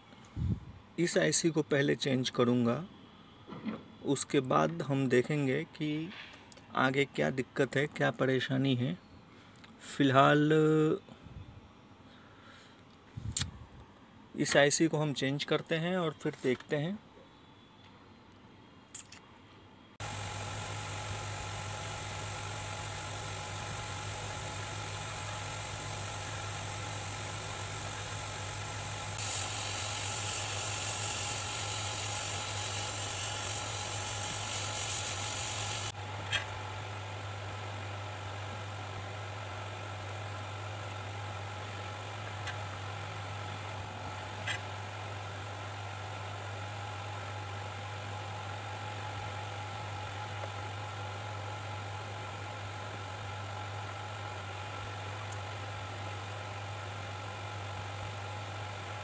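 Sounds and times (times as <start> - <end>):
steady electrical hum: 16.8 - 59.0
sharp click: 18.9 - 19.3
loud airy hiss: 20.0 - 36.0.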